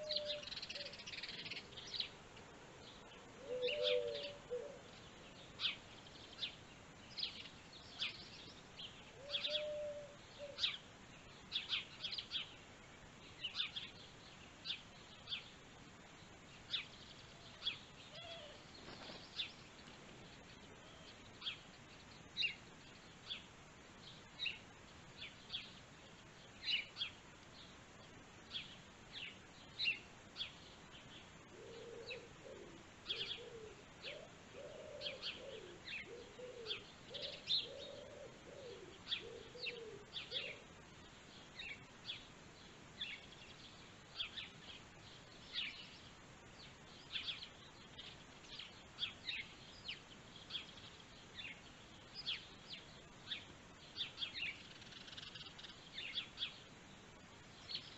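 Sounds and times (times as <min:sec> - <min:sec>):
dove cooing: 0:00.0 - 0:01.6, 0:03.4 - 0:05.0, 0:09.2 - 0:10.8, 0:31.5 - 0:40.7
small birds chirping: 0:00.0 - 0:57.9.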